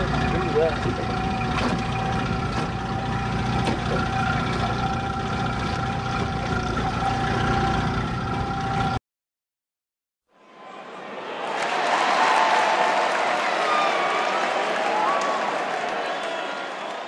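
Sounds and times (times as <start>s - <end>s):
outboard motor droning: 0.0s - 9.0s.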